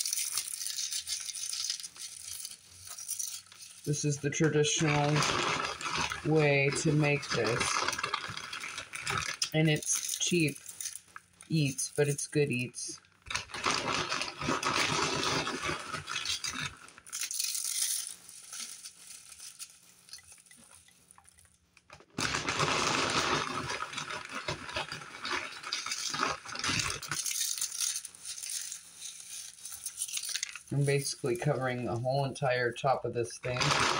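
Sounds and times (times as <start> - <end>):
chips crushed by hand: 0.0 - 12.7, 13.3 - 21.5, 22.1 - 31.2, 33.5 - 33.9.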